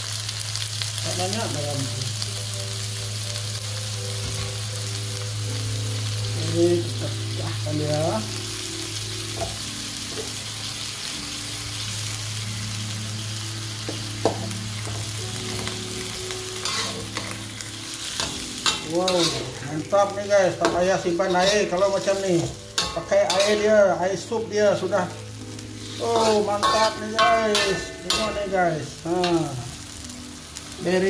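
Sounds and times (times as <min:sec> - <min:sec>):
food sizzling in a wok: 0:00.0 - 0:31.0
spatula knocking on wok: 0:13.9 - 0:14.5
metal spatula stirring: 0:16.6 - 0:23.9, 0:25.5 - 0:28.6.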